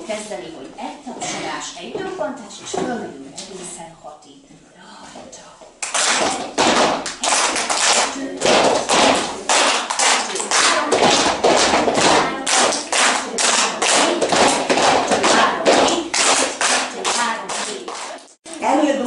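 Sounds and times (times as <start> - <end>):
people clapping in rhythm: 5.8 - 18.4.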